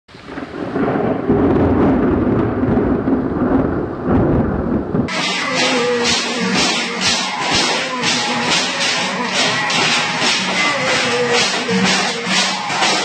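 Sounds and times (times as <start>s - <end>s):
thunder rumbling: 0.1s - 13.0s
loud music with steady beat: 5.1s - 13.0s.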